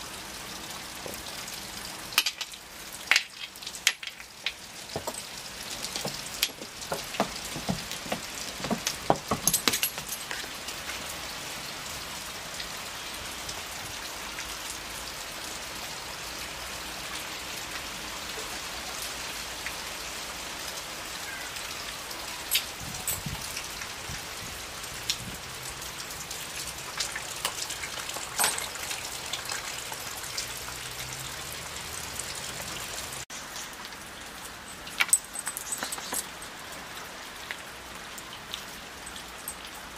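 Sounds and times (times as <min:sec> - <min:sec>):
steady rain hiss: 0:00.0 - 0:39.9
sharp taps and clicks: 0:05.9 - 0:10.1.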